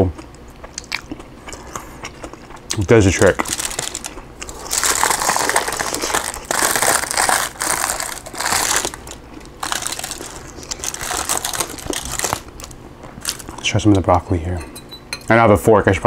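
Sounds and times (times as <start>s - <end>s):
chicken skin crackling: 0.8s - 13.7s
aluminium foil crinkling: 2.7s - 13.7s.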